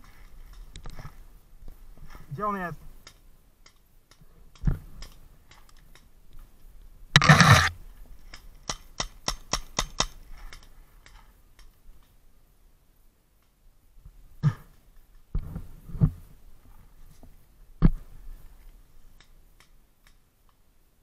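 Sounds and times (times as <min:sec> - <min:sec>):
paintball marker shots: 0:07.2 - 0:07.7.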